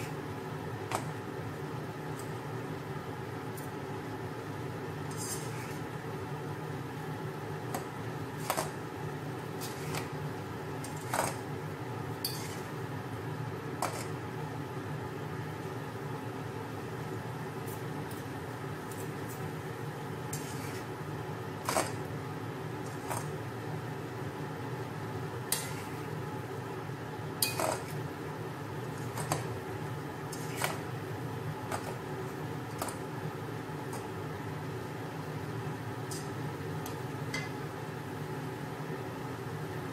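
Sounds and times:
steady low hum: 0.0 - 39.9
utensils clinking and scraping pot: 5.1 - 5.8, 9.6 - 10.2, 10.8 - 11.5, 12.2 - 12.8, 13.8 - 14.2, 20.3 - 20.9, 21.6 - 22.1, 25.5 - 26.1, 27.4 - 28.0, 28.9 - 29.6, 30.3 - 30.9, 36.1 - 37.6
metal utensils clinking on a pan: 12.2 - 12.7, 25.5 - 26.0, 27.4 - 28.0, 36.9 - 37.6.

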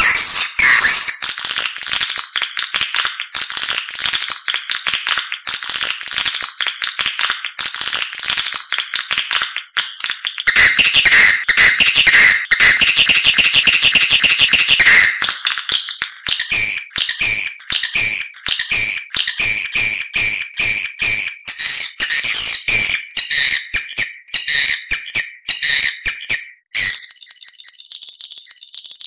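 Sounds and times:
bird twittering chirps: 0.0 - 1.2, 26.1 - 29.0.

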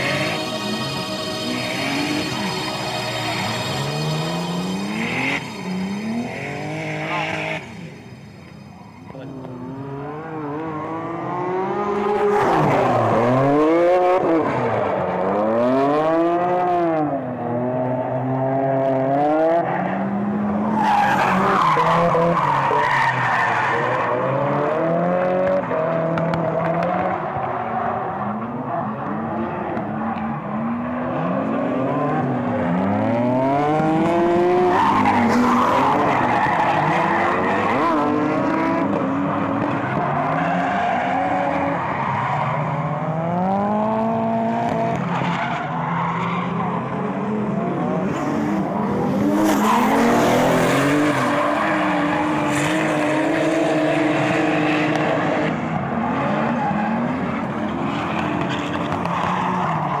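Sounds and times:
car engines revving: 0.0 - 60.0.

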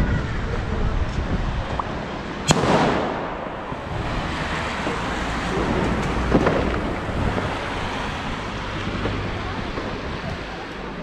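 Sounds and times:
firework bangs and cracks: 2.4 - 10.4.

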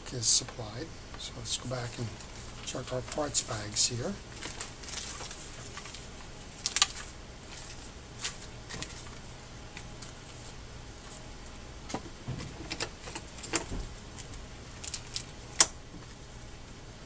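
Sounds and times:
plastic bags rustling: 1.6 - 16.3
small parts clicking and rattling: 4.3 - 9.1, 12.4 - 15.7.

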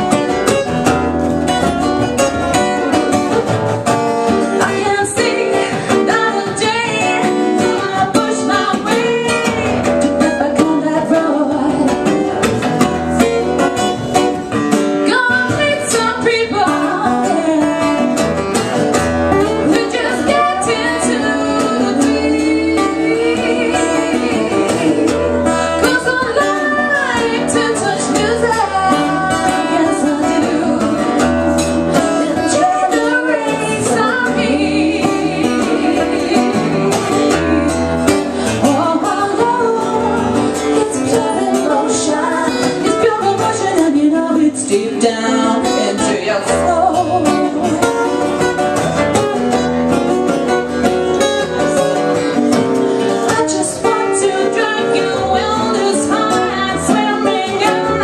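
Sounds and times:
strummed acoustic guitars: 0.0 - 58.0
woman singing lead: 0.0 - 58.0
second woman singing along: 4.5 - 12.4, 15.0 - 18.2, 19.6 - 31.4, 32.0 - 48.3, 53.1 - 58.0.

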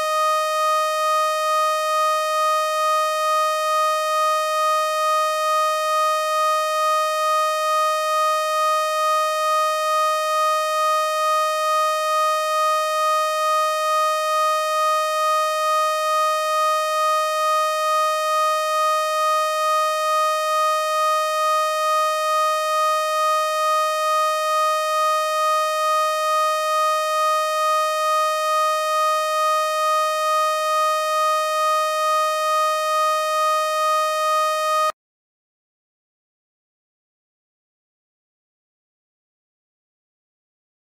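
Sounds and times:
pulsing electronic tone: 31.4 - 34.9.

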